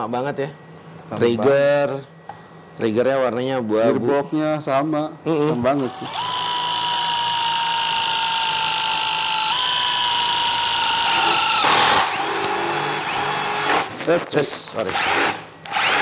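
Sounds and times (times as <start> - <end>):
impact driver whining: 5.8 - 14.1, 14.8 - 16.0.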